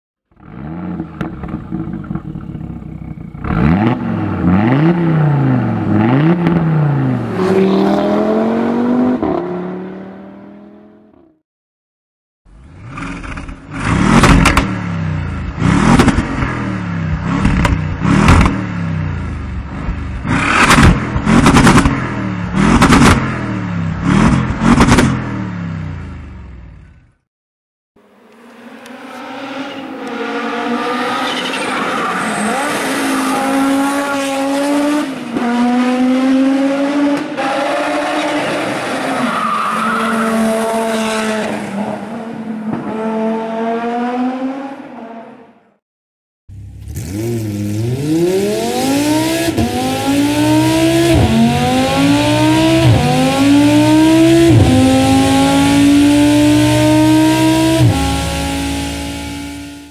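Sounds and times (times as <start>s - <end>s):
car engine accelerating: 46.5s - 59.9s.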